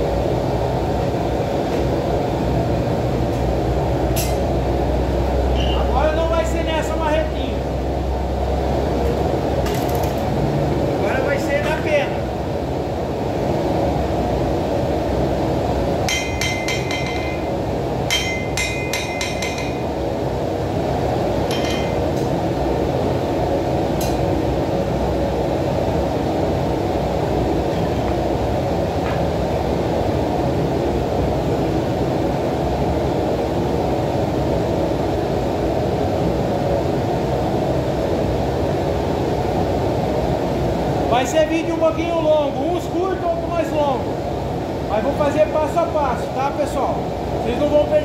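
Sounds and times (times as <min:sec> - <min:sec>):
forge burner rushing: 0:00.0 - 0:48.0
hammer ringing on anvil: 0:16.1 - 0:17.5, 0:18.1 - 0:19.8.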